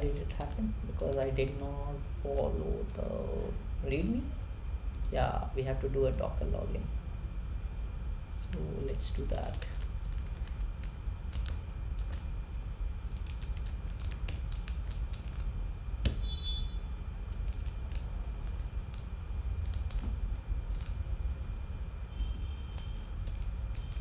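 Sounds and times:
low hum: 0.0s - 24.0s
keyboard typing: 13.1s - 15.5s, 17.3s - 21.0s.

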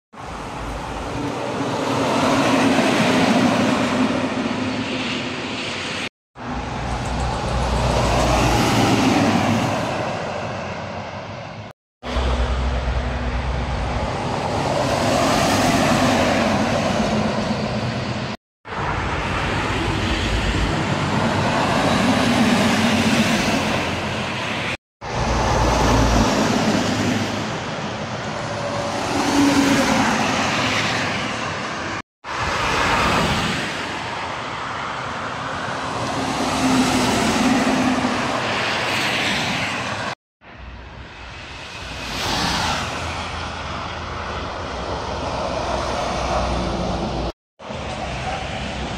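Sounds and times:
trucks and cars passing: 0.2s - 48.9s.

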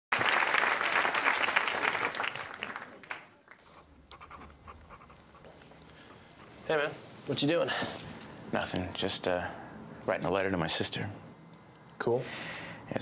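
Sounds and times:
applause: 0.1s - 3.7s
faint scratches: 3.6s - 7.1s.

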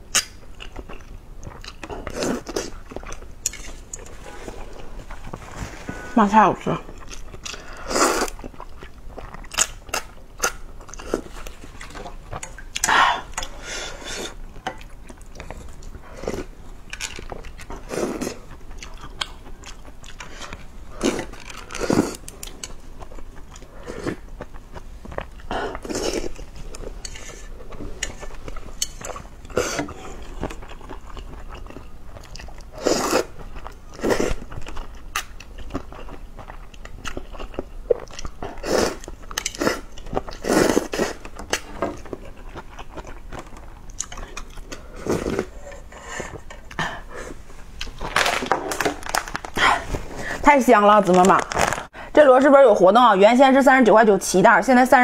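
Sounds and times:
slurping noodles: 7.5s - 8.4s, 17.8s - 18.4s, 20.2s - 22.2s, 32.7s - 33.4s, 38.4s - 41.2s.

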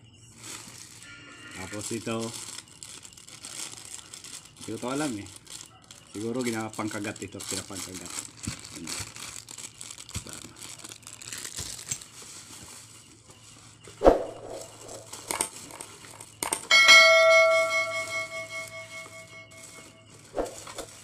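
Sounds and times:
rustling and handling noise: 0.0s - 21.0s
bell-like metallic ring: 16.7s - 20.1s.

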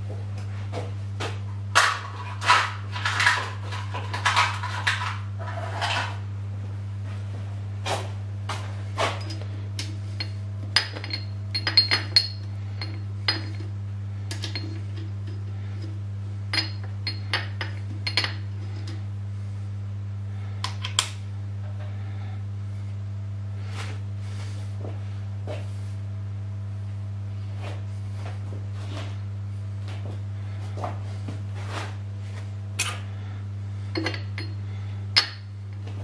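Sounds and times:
steady low hum: 0.0s - 36.0s
metal parts clinking on steel plate: 10.2s - 13.6s, 14.3s - 15.1s.

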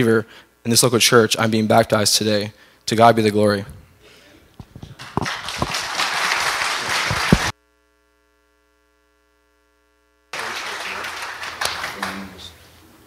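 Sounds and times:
faint electrical hum: 0.0s - 13.0s
microphone handling rustling: 4.6s - 5.8s.

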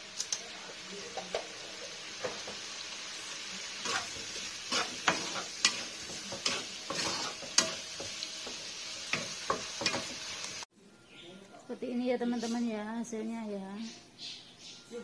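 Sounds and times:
food sizzling in a pan: 0.0s - 10.7s
spatula scraping and knocking wok: 3.8s - 10.6s.

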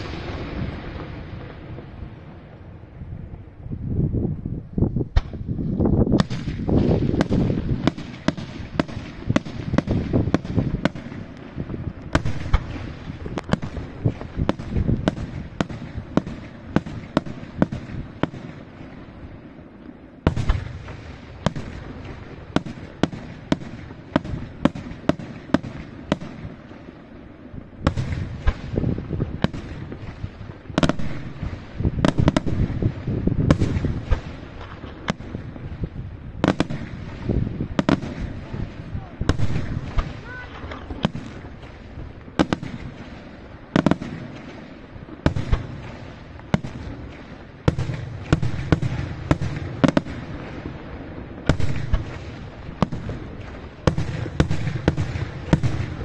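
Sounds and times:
firework shells bursting: 6.1s - 18.8s.

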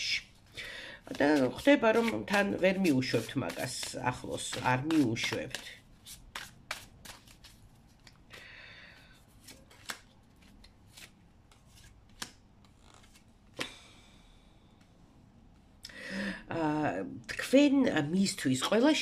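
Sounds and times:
cards sliding: 1.1s - 8.2s, 9.3s - 13.3s
cards snapping and tapping: 3.5s - 8.2s, 9.4s - 13.7s.

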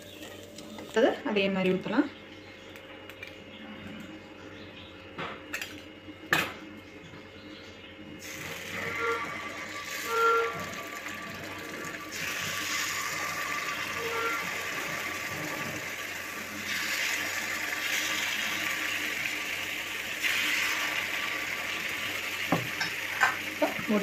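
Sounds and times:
batter sizzling in hot oil: 8.2s - 24.0s.

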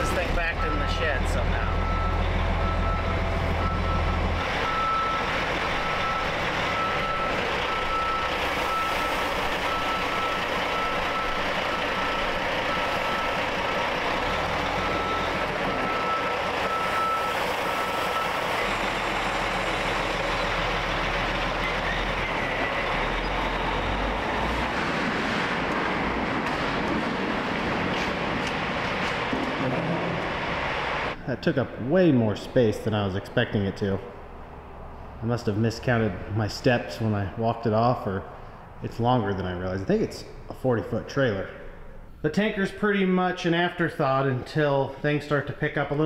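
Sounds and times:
truck reversing alarm beeping: 0.0s - 24.6s
truck engine running: 0.0s - 31.2s.

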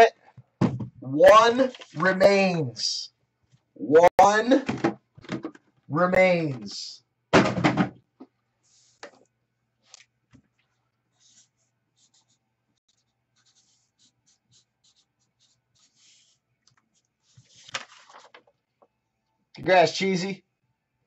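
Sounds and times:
marker pen writing on paper: 11.1s - 17.7s.

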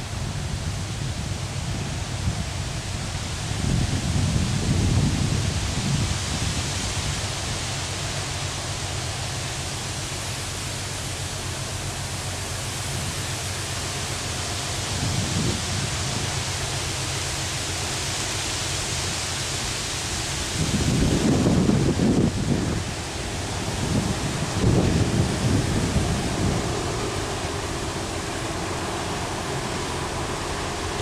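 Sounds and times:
ship passing with rushing noise: 0.0s - 31.0s
wind gust buffeting microphone: 0.1s - 6.9s, 14.9s - 16.3s, 20.4s - 31.0s.

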